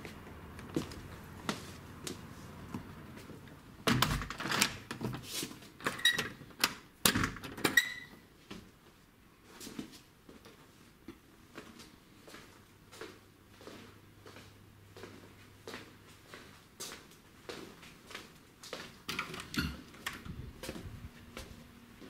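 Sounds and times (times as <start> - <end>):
door shutting and latching: 3.9 - 5.1.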